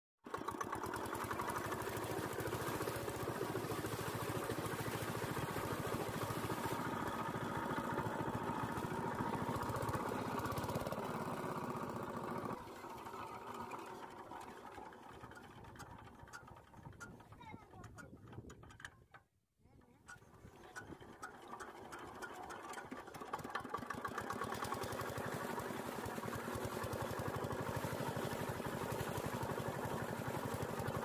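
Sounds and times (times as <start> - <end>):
diesel engine running: 0.3 - 12.6, 20.7 - 31.0.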